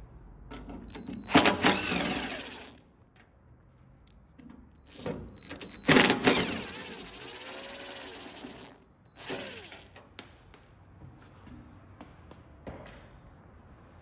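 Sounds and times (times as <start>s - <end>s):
cordless drill running: 1.3s - 2.8s, 5.8s - 10.0s.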